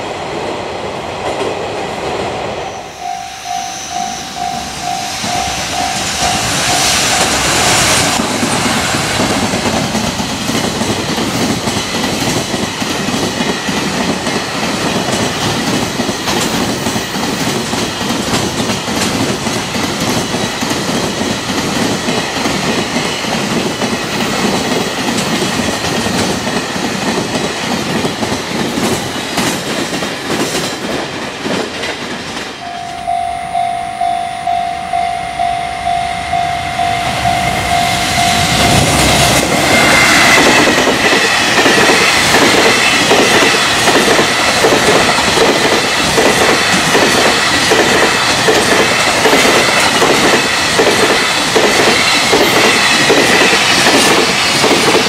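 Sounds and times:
level crossing alarm ringing: 2.6 - 8.2, 32.6 - 41.2
train wheels clattering over joints: 38.7 - 55.0.

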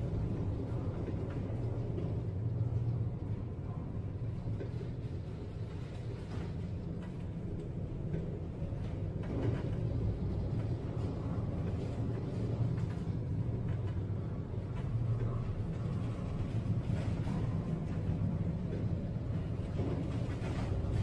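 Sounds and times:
ship noise in heavy seas: 0.0 - 21.0
storm wind rumble: 0.0 - 21.0.

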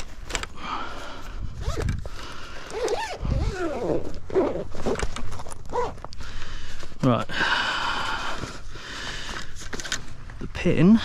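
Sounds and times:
zip being pulled open: 1.5 - 6.1
gear rustling: 1.6 - 7.1.

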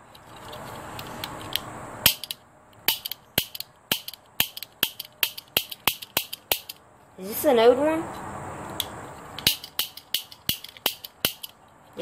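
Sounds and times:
toy cap gun firing: 2.0 - 6.8, 9.4 - 11.6.

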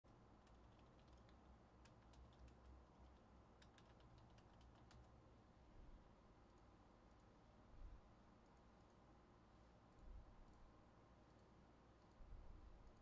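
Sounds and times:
typing on keyboard: 0.4 - 5.2.

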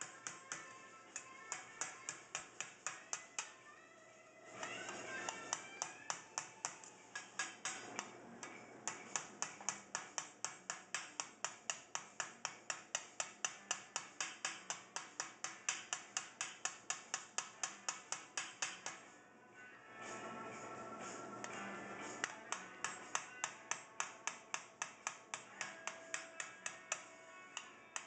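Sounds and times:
hammer tapping sheet metal: 0.0 - 3.6, 4.6 - 19.1, 21.4 - 28.0.

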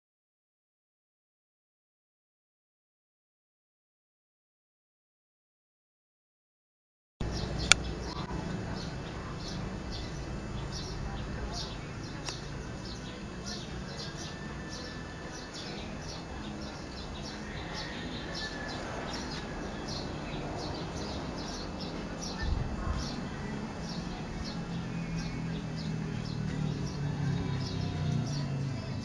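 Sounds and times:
low outdoor rumble: 7.2 - 29.0.

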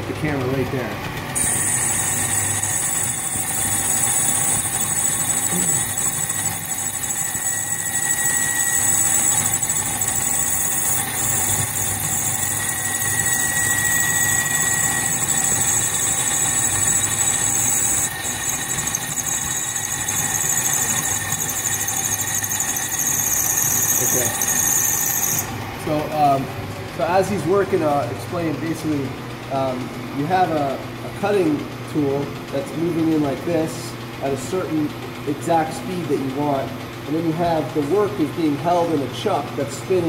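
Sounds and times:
lathe humming: 0.3 - 40.0
squeal of cutting tool: 1.4 - 25.5.

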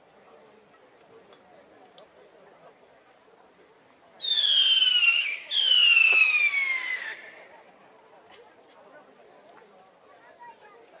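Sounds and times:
whistling fireworks: 4.2 - 7.6.

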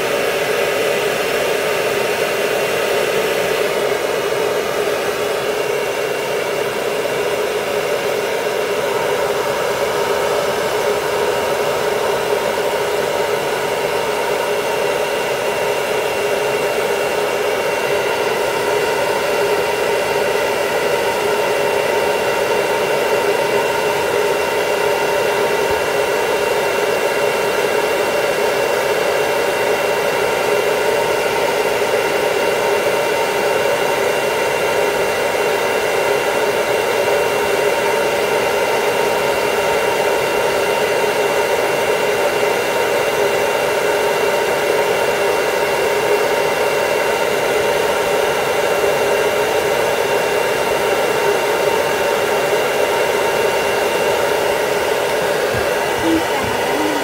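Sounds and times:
hair dryer running: 0.0 - 57.0.

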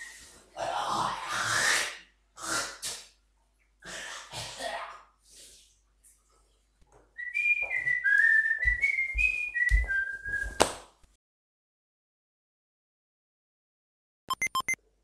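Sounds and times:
person whistling a tune: 7.2 - 10.6.

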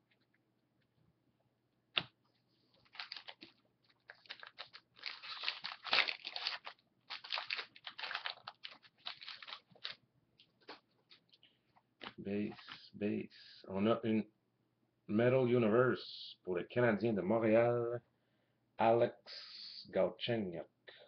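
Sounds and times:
wrapper and cards rustling: 2.0 - 11.4, 12.0 - 12.9.

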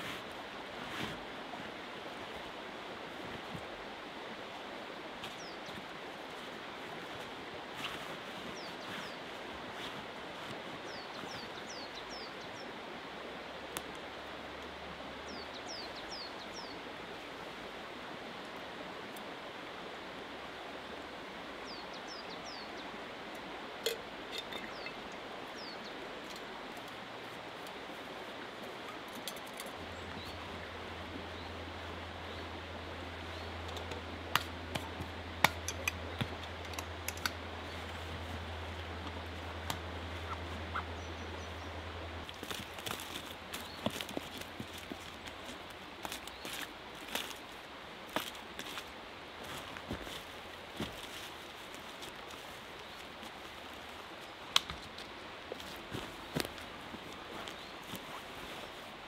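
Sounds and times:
small river rushing: 0.0 - 59.0
small birds chirping: 5.2 - 6.5, 7.8 - 12.8, 15.2 - 16.9, 21.6 - 23.0, 23.9 - 27.8, 28.4 - 58.9
camp gear clicking and clinking: 23.8 - 25.2, 28.6 - 30.5, 33.6 - 40.5, 42.2 - 58.7.

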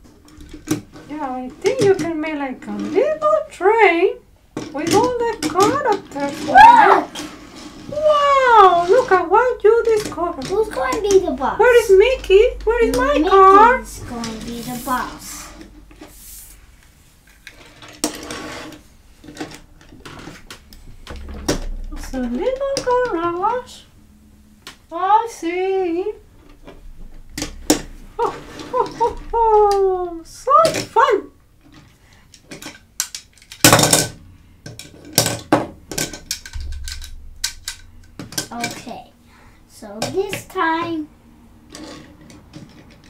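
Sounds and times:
plastic toy pieces clicking: 32.3 - 34.1.

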